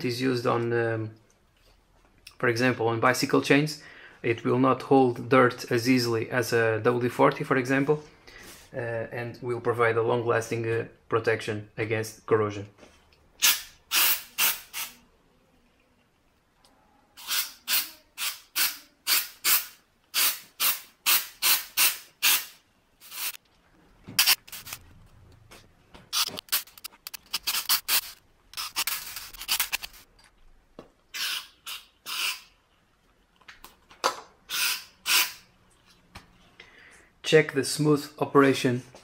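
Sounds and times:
aerosol can spraying: 13.4s - 15.0s, 17.2s - 23.4s.

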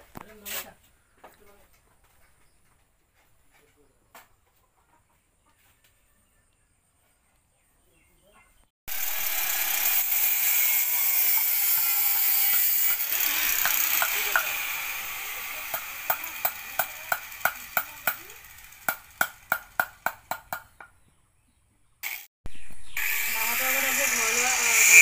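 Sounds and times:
power tool whirring: 8.9s - 19.7s, 23.0s - 25.0s
hammer striking steel: 11.3s - 14.7s, 15.6s - 20.7s.

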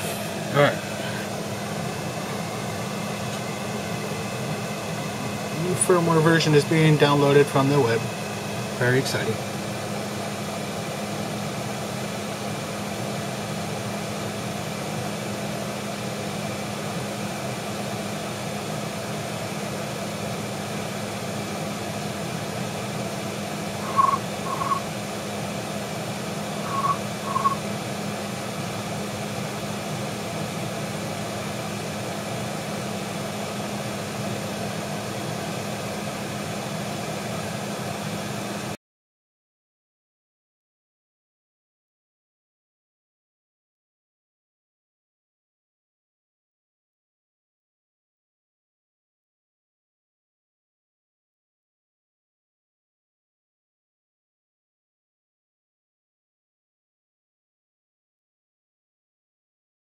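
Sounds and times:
fan-like hum and hiss: 0.0s - 38.8s
low steady tone: 23.8s - 24.9s
short high chirps: 23.8s - 24.9s, 26.6s - 27.6s.

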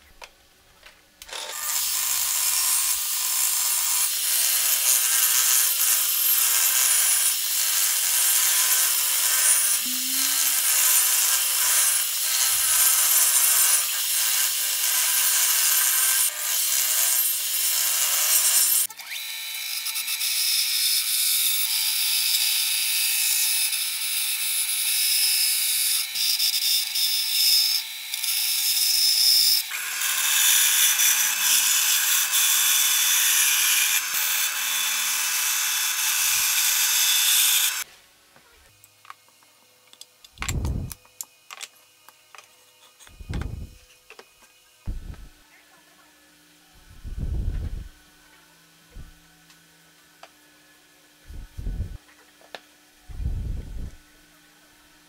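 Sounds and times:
band saw cutting wood: 1.2s - 37.9s.

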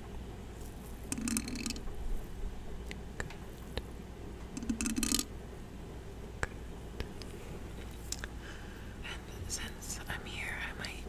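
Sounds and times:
close rustling: 0.4s - 2.4s.

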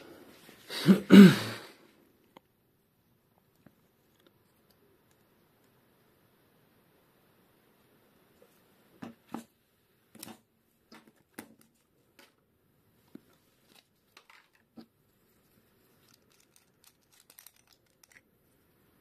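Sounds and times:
camera handling clicks and rustles: 16.0s - 18.2s.

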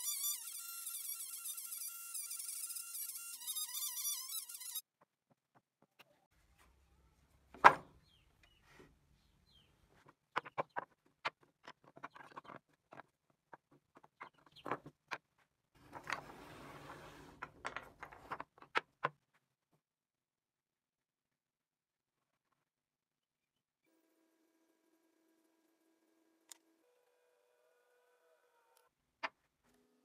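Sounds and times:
wood scraping on bench: 15.8s - 18.5s.

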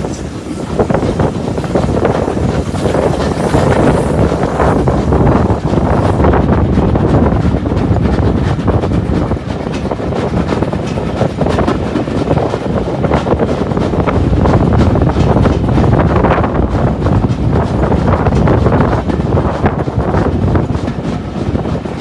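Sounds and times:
train coaches rumbling and rattling: 0.0s - 22.0s
wind buffeting microphone: 0.0s - 22.0s.

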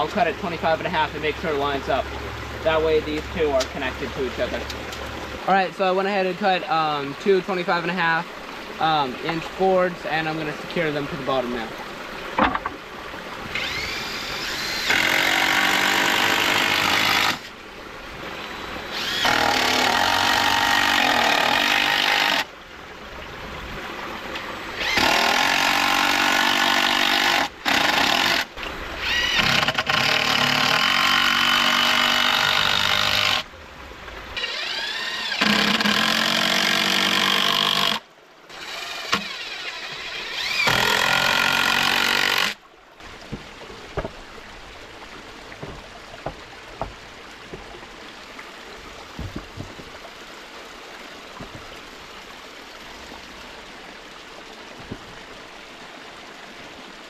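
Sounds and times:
small stream rushing: 0.0s - 57.0s
cordless drill driving screws: 13.5s - 17.4s, 18.9s - 22.4s, 24.8s - 33.4s, 34.4s - 42.6s
light knocks: 43.2s - 44.2s.

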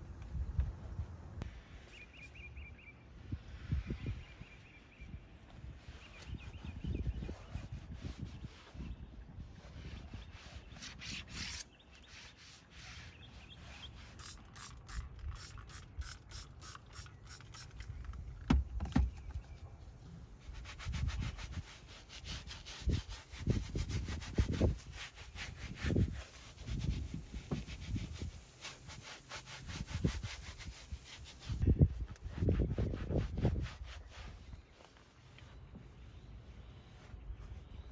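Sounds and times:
scrub brush scrubbing: 20.5s - 31.6s.

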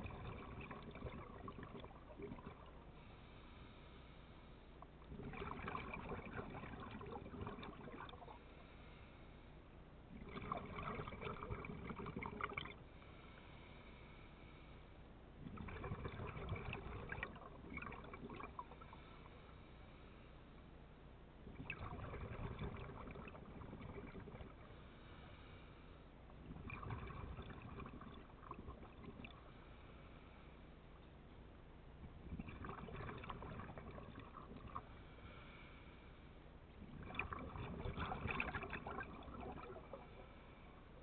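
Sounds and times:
underwater exhaled bubbles: 0.0s - 3.1s, 4.8s - 8.5s, 10.1s - 12.9s, 15.4s - 19.5s, 21.4s - 25.2s, 26.3s - 29.7s, 32.0s - 35.6s, 36.7s - 41.0s.

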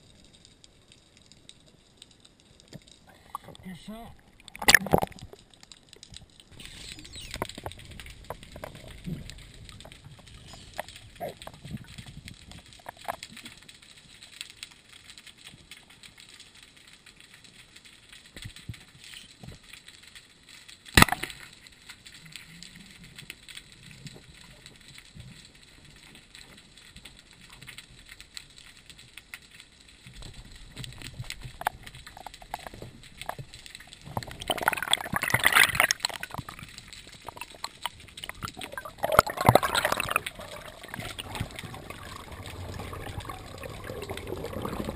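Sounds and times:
faint underwater crackling: 0.0s - 44.9s
gurgling rushing water and bubbles: 2.9s - 13.6s, 30.1s - 44.9s.

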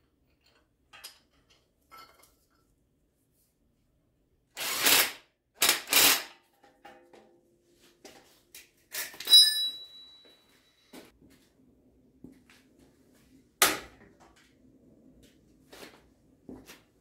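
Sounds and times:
metal clang ringing: 9.3s - 10.2s.

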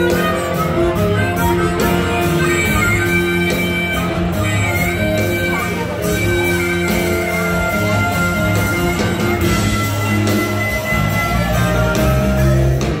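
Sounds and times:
harmonica high notes: 0.0s - 13.0s
live rock band playing: 0.0s - 13.0s.

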